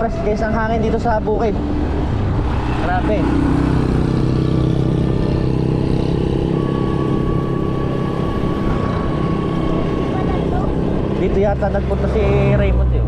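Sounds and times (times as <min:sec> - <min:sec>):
small motorcycle engine running: 0:02.8 - 0:12.9.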